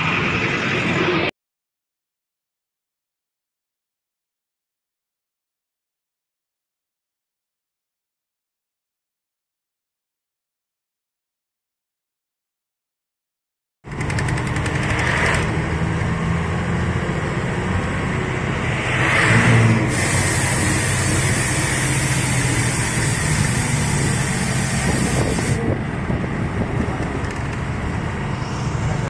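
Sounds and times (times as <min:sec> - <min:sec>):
road noise: 0:00.0 - 0:01.3, 0:13.8 - 0:29.0
bus engine running: 0:13.9 - 0:29.0
hiss: 0:19.9 - 0:25.6.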